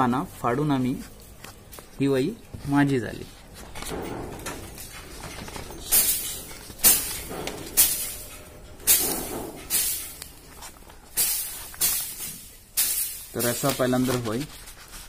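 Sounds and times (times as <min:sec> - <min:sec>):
notebook pages turning: 0:01.0 - 0:08.3, 0:09.0 - 0:12.0, 0:13.4 - 0:15.0.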